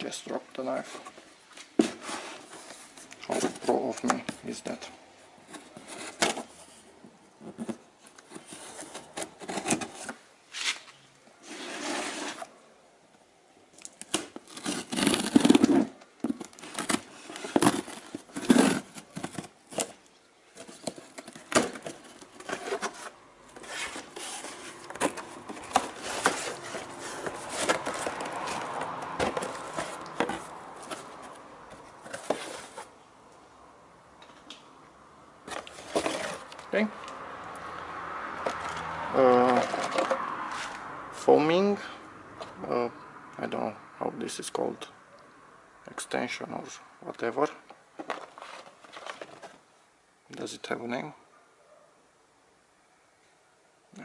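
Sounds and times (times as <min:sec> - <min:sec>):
cardboard flaps rustling: 0:00.8 - 0:04.8, 0:14.1 - 0:33.0, 0:35.4 - 0:36.8, 0:48.0 - 0:49.6
knife slitting packing tape: 0:14.1 - 0:15.9.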